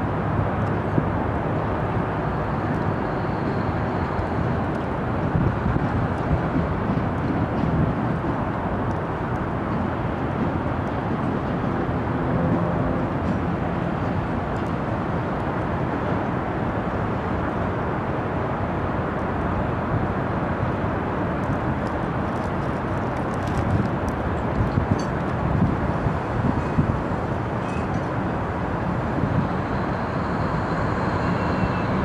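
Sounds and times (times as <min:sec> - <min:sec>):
diesel locomotive engine running: 0:21.9 - 0:32.0.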